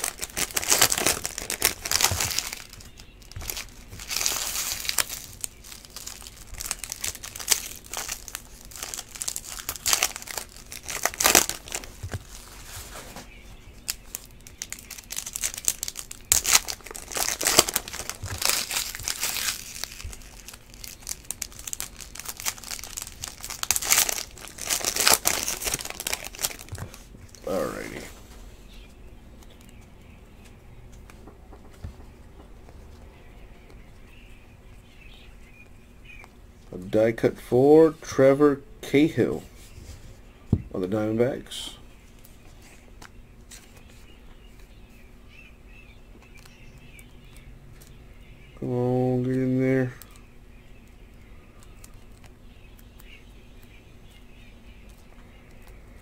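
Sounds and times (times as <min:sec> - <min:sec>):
foil packs crinkling and tearing: 0:00.0 - 0:28.0
cards shuffling: 0:00.0 - 0:28.1.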